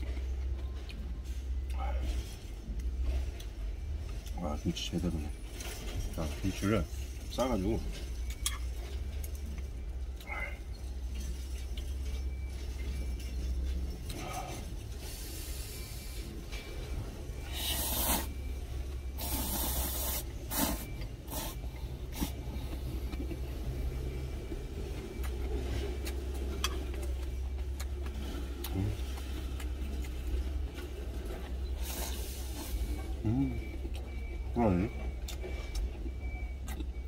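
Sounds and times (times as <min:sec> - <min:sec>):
steady low engine hum: 0:00.0 - 0:37.0
chewing: 0:07.8 - 0:37.0
noodles slurping: 0:17.4 - 0:18.4, 0:19.2 - 0:22.4.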